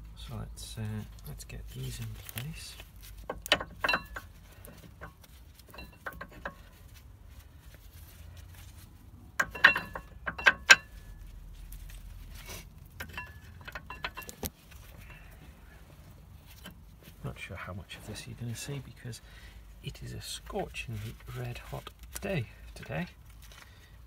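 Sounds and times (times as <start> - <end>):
metallic clinks of brake pads: 3.3 - 6.9, 9.4 - 11.4, 12.9 - 15.4.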